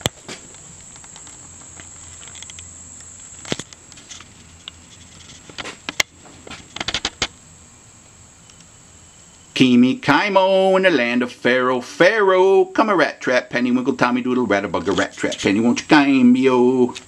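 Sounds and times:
camera handling clicks and rustles: 0:00.0 - 0:07.2
faint high-pitched whine: 0:00.0 - 0:17.0.

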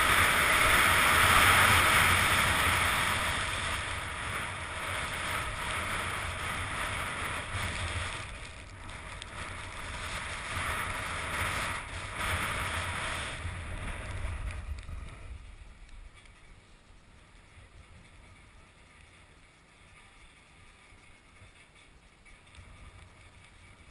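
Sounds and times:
skis hissing on snow: 0:00.0 - 0:15.3
wind buffeting microphone: 0:00.0 - 0:23.9.

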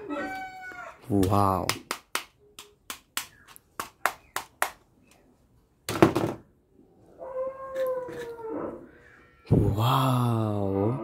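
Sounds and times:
plastic clattering on a table: 0:05.9 - 0:06.4.

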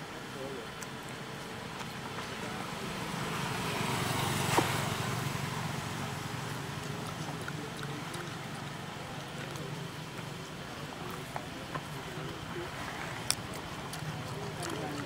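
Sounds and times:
vehicle passing by: 0:02.4 - 0:09.9.

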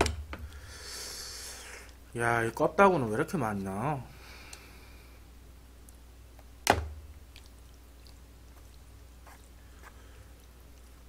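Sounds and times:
chewing: 0:07.3 - 0:11.0.

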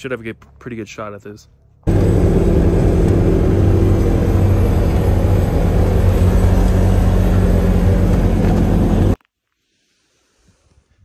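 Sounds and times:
loud road noise: 0:01.9 - 0:09.2
vehicle engine running: 0:01.9 - 0:09.2.

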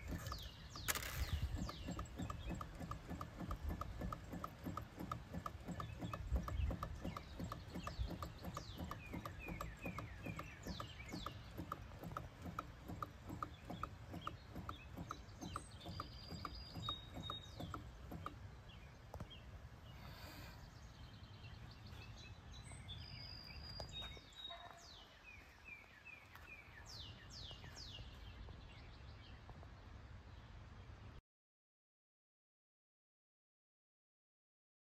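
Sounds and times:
small engine linkage clicking: 0:00.0 - 0:18.5
low engine thrum: 0:00.0 - 0:19.4
birds chirping and whistling: 0:00.0 - 0:29.4.

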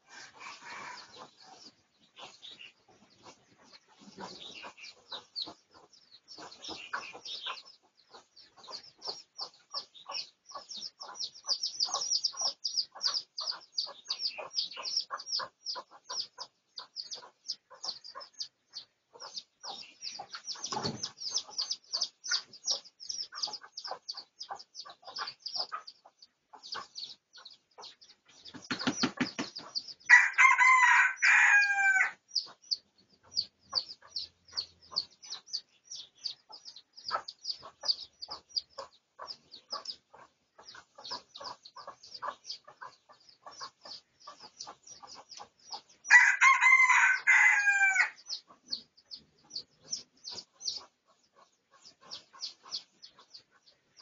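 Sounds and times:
rapid high chirping: 0:26.5 - 0:30.1
rooster crowing: 0:30.1 - 0:32.2, 0:46.1 - 0:48.2.

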